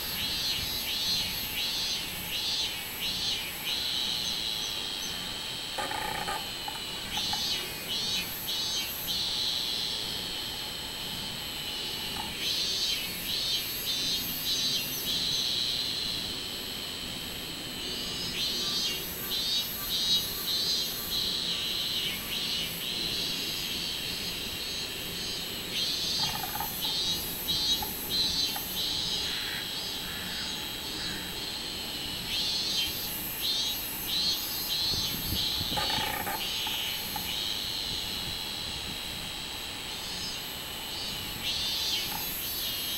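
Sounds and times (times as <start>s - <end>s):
cicadas pulsing calls: 0.0s - 42.9s
high-pitched cicada buzz: 0.0s - 42.9s.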